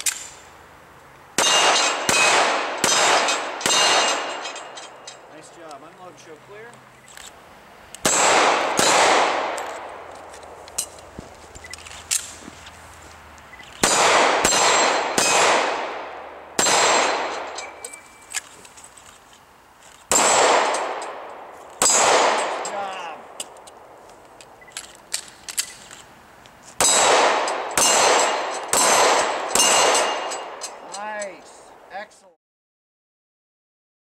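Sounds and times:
pistol shots: 1.4s - 4.8s, 8.0s - 10.0s, 13.8s - 17.8s, 20.1s - 23.5s, 26.8s - 30.6s.

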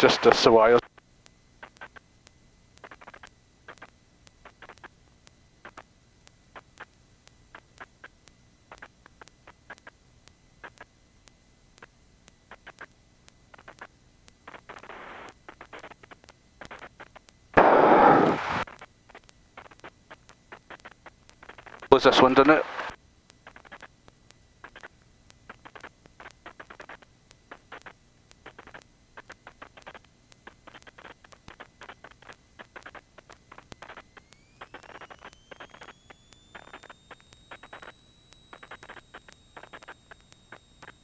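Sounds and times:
intercom clicks and crackles: 0.0s - 41.0s
loud rush of noise: 17.6s - 18.6s.

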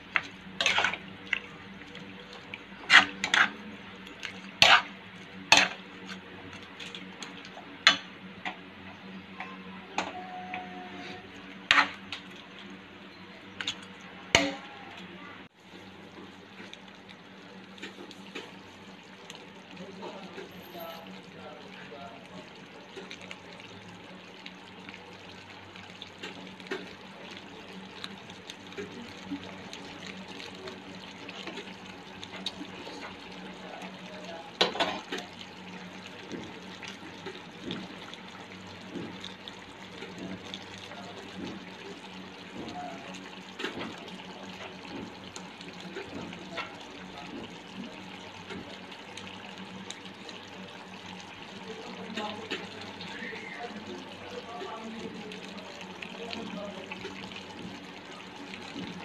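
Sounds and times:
food sizzling and bubbling: 0.0s - 59.0s.

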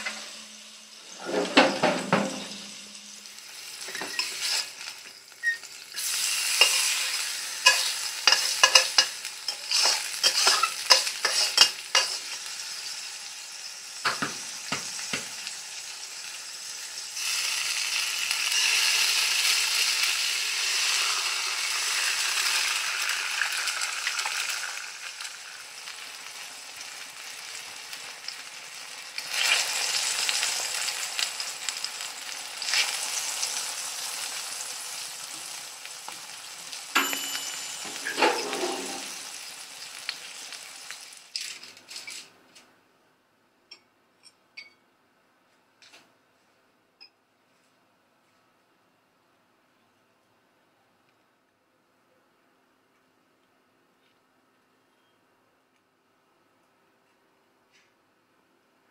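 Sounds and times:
sausage sizzling in oil: 0.0s - 42.2s
metal spatula scraping and tapping: 3.8s - 4.7s, 7.6s - 12.4s.

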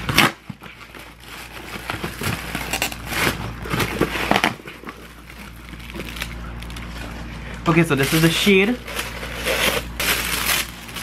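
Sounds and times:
cardboard flaps scraping: 0.0s - 7.2s
plastic wrapping crinkling: 0.0s - 7.2s, 7.8s - 11.0s.

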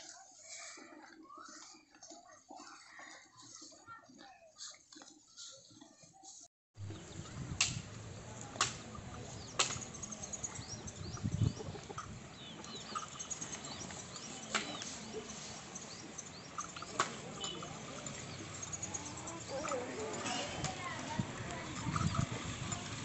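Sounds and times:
small birds chirping: 0.0s - 23.0s
steady outdoor hiss: 6.8s - 23.0s.

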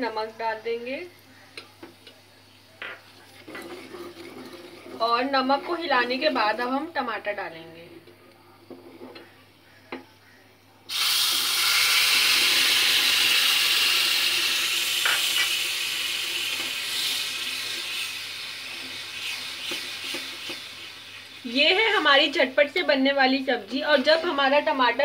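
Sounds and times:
tomato sizzling in hot oil: 10.9s - 25.0s.

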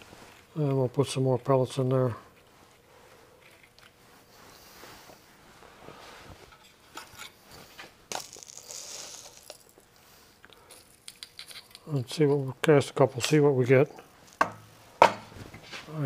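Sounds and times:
plastic pellets rattling in jar: 8.1s - 9.9s.

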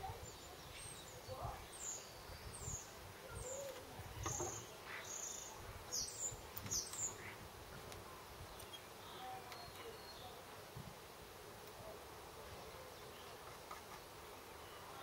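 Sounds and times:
small bird chirping: 0.0s - 7.4s, 8.5s - 10.4s.

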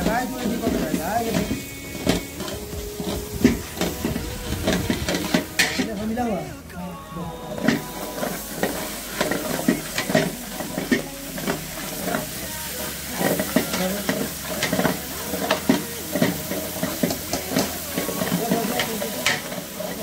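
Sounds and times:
metal spatula scraping a pot: 0.0s - 6.2s
frying in hot oil sizzling: 0.0s - 20.0s.

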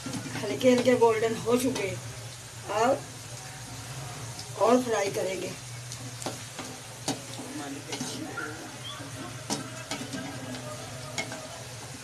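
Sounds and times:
vegetables sizzling in oil: 0.0s - 12.0s
spatula knocking on pan: 6.2s - 8.2s, 9.4s - 11.5s.

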